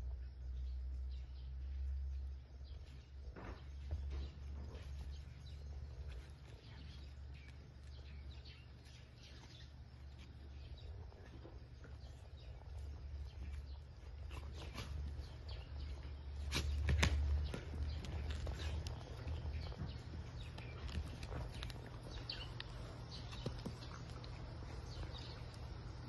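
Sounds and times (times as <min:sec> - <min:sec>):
paws patting and scratching: 0:02.6 - 0:26.0
dogs scuffling on rubber matting: 0:02.7 - 0:09.6, 0:13.3 - 0:25.6.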